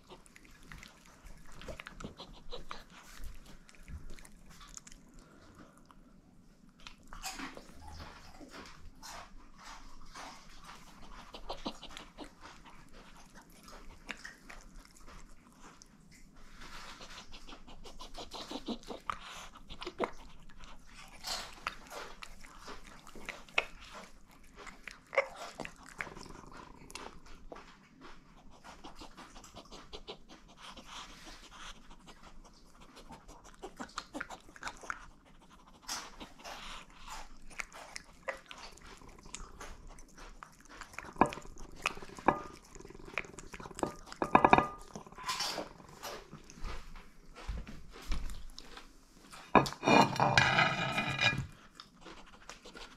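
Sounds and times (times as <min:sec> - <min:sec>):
dog chewing and crunching food: 0:00.0 - 0:52.9.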